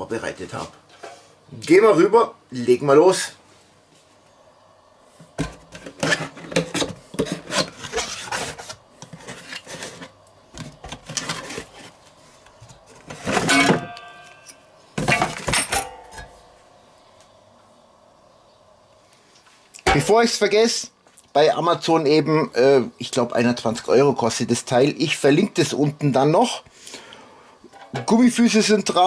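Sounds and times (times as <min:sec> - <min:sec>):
cardboard rubbing and scraping: 0:05.7 - 0:12.0.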